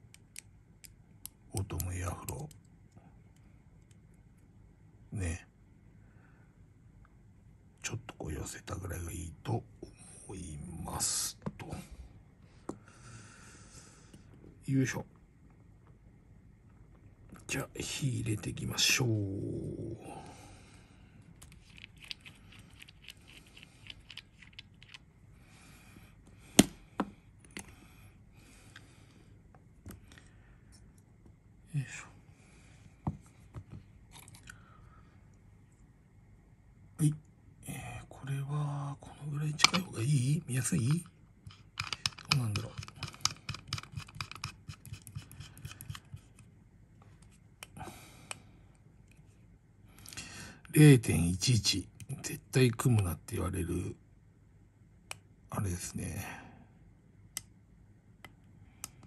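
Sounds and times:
metal parts clicking and tapping: 40.9s - 46.1s.

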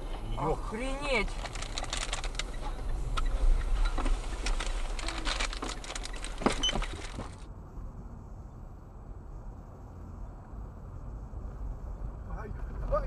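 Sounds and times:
car cabin road rumble: 0.0s - 13.0s
dull steady drone: 0.0s - 13.0s
scattered clicks and knocks: 1.3s - 7.4s.

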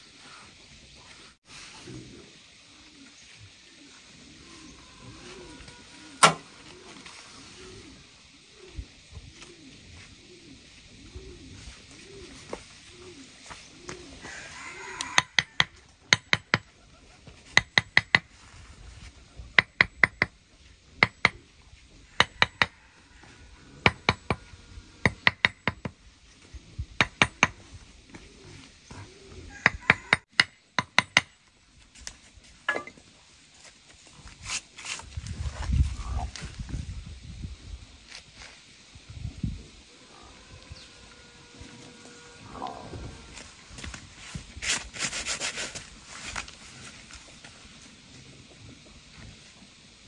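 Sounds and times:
doves cooing: 0.1s - 30.2s, 39.6s - 44.4s
hammer tapping concrete blocks: 15.2s - 16.7s, 17.6s - 18.3s, 19.6s - 20.3s, 21.0s - 21.4s, 25.1s - 26.0s, 27.0s - 27.6s, 29.6s - 31.4s.

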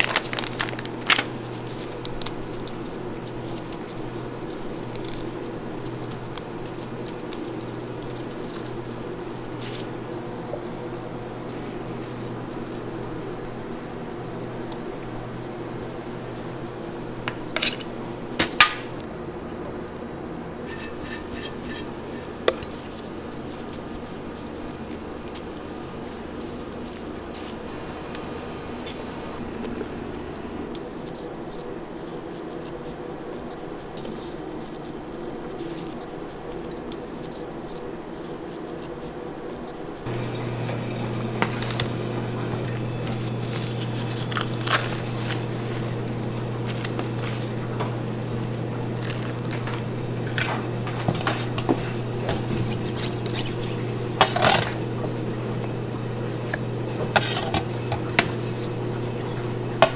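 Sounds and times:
paper and metal clicks: 0.0s - 10.0s, 29.6s - 55.8s
kitchen machinery humming: 0.0s - 38.0s, 39.9s - 59.9s.

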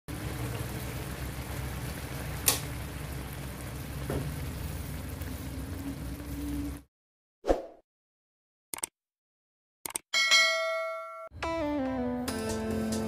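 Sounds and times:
food sizzling in a frying pan: 0.1s - 6.8s
sharp click: 9.8s - 10.0s.

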